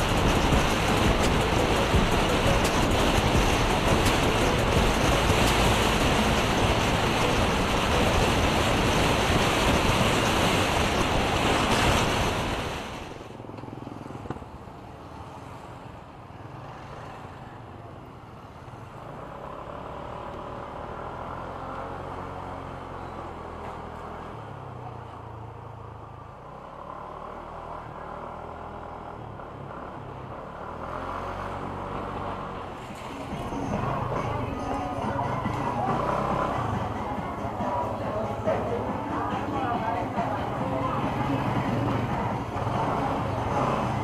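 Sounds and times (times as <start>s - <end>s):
loud steady rushing noise: 0.0s - 13.5s, 32.6s - 44.0s.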